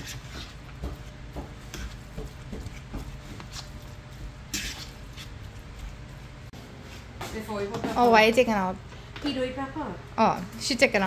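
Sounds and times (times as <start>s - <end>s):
fork scraping bowl: 0.0s - 0.6s, 1.7s - 6.1s.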